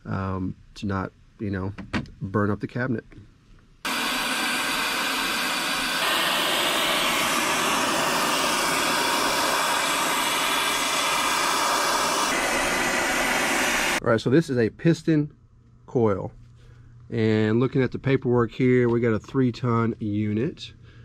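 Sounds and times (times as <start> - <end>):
torch flame hissing: 3.9 - 14.0.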